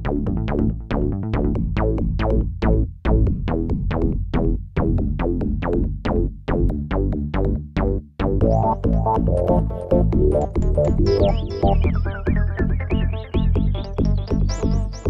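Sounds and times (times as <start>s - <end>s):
electronic music: 8.4s - 15.0s
gliding synth line: 8.5s - 13.6s.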